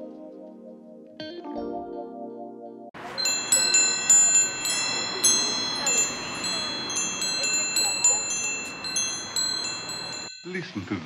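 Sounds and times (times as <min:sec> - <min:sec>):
music: 0:00.0 - 0:03.0
wind chimes tinkling: 0:03.0 - 0:11.0.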